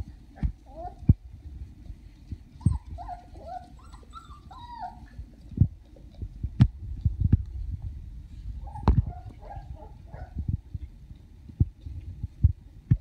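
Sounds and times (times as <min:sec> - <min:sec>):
puppies yipping and whining: 0:00.3 - 0:01.0, 0:02.5 - 0:05.4, 0:08.6 - 0:10.4.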